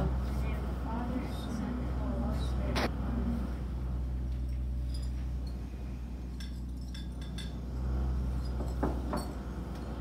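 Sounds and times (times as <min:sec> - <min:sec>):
low hum: 0:00.0 - 0:10.0
small plates clinking: 0:06.4 - 0:07.6.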